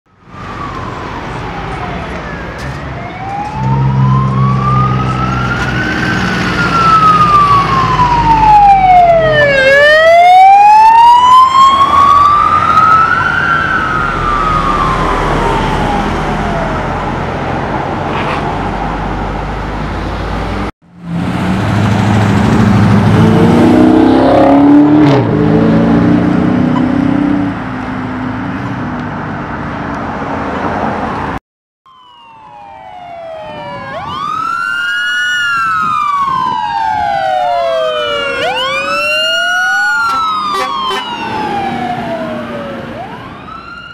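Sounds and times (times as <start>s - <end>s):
police siren wailing: 0.1s - 17.7s, 31.9s - 43.9s
road traffic: 0.1s - 43.9s.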